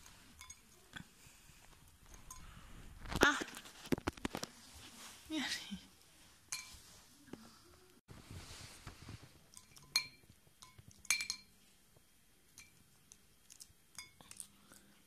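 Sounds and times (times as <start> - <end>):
cat eating from glass bowl: 0.0 - 2.6, 9.4 - 11.8, 12.5 - 15.0.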